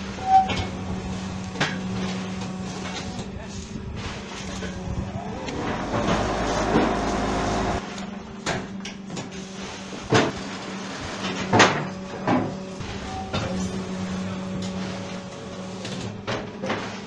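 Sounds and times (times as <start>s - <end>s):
press vibration rumble: 0.0s - 8.2s
hydraulic power pack hum: 0.0s - 17.0s.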